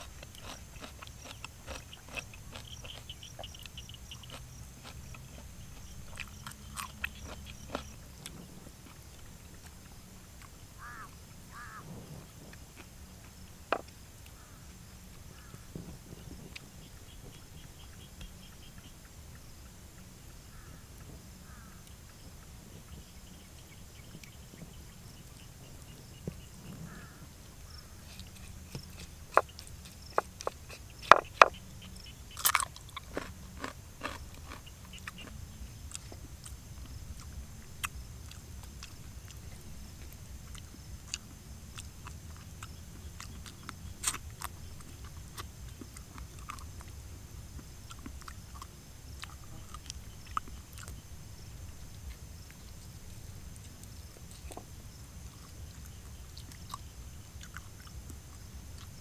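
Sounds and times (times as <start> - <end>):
fish crunching and crackling: 0.0 - 9.8, 27.7 - 31.7, 32.3 - 36.2
person chewing: 0.0 - 10.6, 28.0 - 31.6, 32.3 - 47.0, 47.6 - 51.0, 55.3 - 59.0
low background noise: 0.0 - 59.0.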